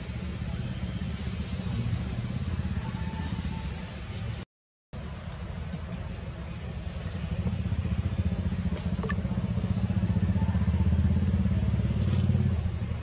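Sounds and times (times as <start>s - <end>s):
motor engine throbbing: 6.2s - 13.0s.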